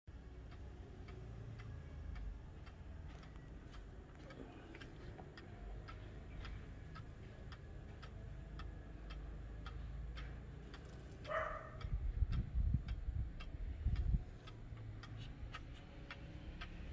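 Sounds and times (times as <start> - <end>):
wall clock ticking: 0.1 - 16.9.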